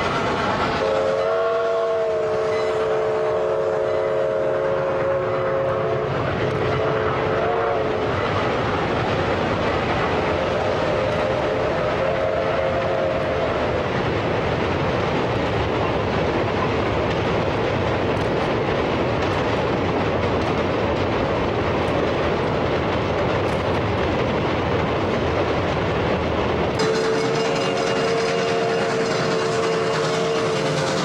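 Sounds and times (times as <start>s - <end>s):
steam locomotive whistle: 0.0s - 8.2s, 10.4s - 13.7s, 26.8s - 31.0s
train wheels rumbling on rail: 0.0s - 31.0s.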